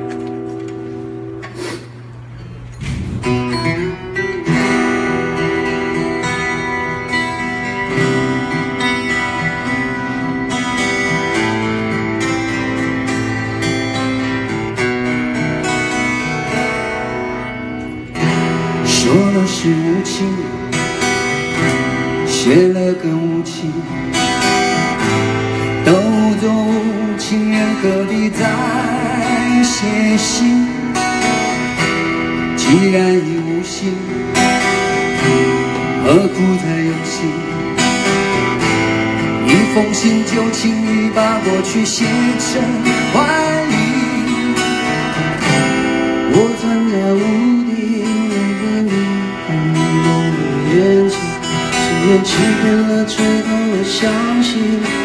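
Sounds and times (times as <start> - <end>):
acoustic guitars strummed: 0.0 - 55.0
man singing: 18.6 - 31.6, 32.4 - 55.0.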